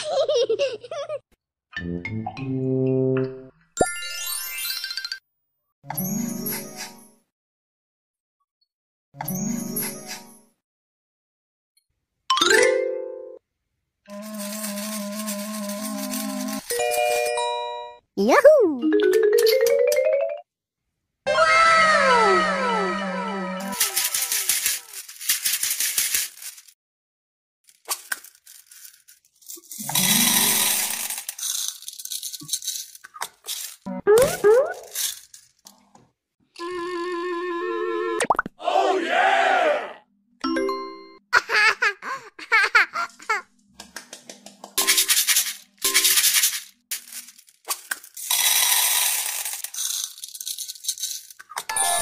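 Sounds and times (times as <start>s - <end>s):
beads rattling into a tray: 14.1s - 16.7s, 23.8s - 26.8s, 27.7s - 35.7s, 44.8s - 51.6s.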